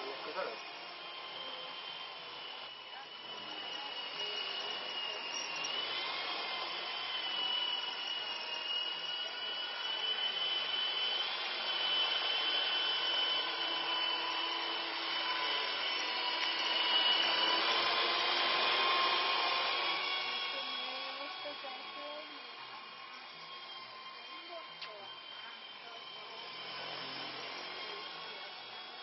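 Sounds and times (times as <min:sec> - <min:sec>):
model helicopter rotor whine: 0:00.0 - 0:29.0.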